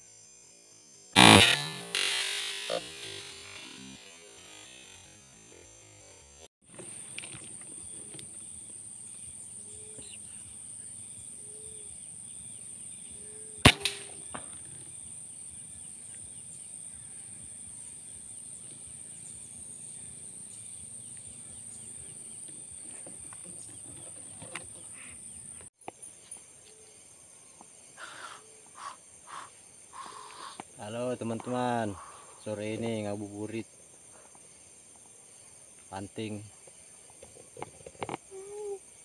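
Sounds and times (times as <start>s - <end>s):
high-pitched insect drone: 0.0s - 39.0s
air rifle shot: 13.6s - 14.7s.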